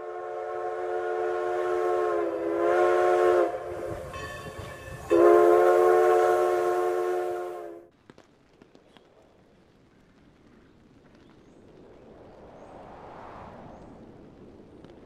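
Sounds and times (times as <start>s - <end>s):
steam locomotive chime whistle: 0.0s - 7.9s.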